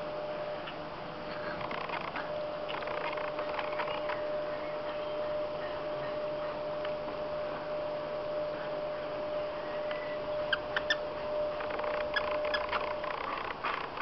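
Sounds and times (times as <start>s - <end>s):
faint steady whine: 0.0s - 14.0s
dog toy squeaking: 11.6s - 14.0s.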